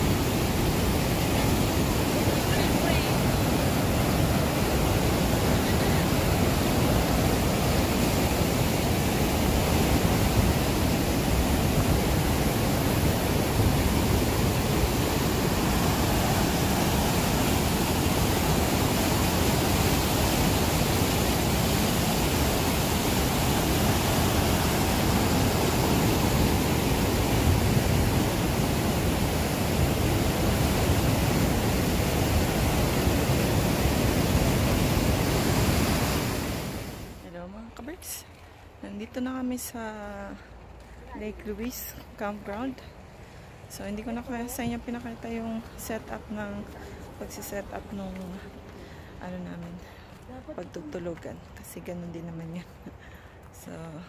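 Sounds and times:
river whitewater rushing over rapids: 0.0 - 37.2.

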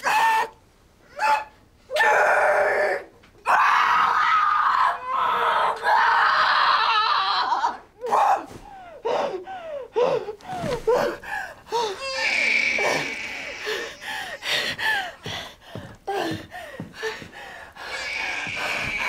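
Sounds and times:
person screaming: 12.0 - 14.2, 17.9 - 19.0.

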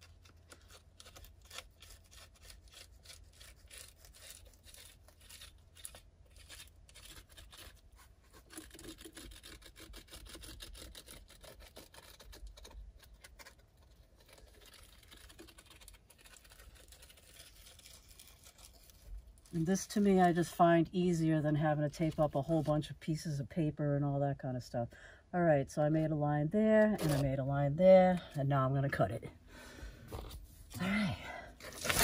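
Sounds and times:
marker scratching on foil: 0.0 - 20.5
foil rustling: 0.0 - 20.6, 31.6 - 32.0.

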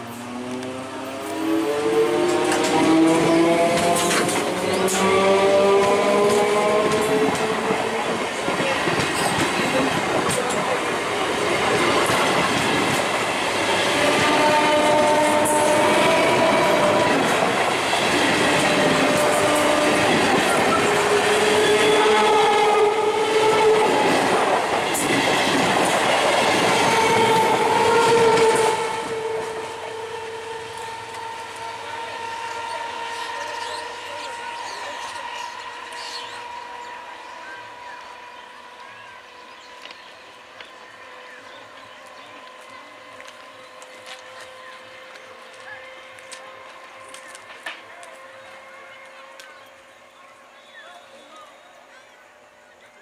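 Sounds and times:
train wheels clattering over track: 0.0 - 31.5, 41.8 - 49.7.

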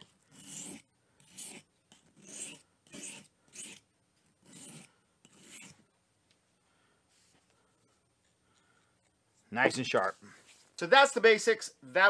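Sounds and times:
knife blade scraping sharpening stone: 0.0 - 3.8, 4.4 - 5.8.

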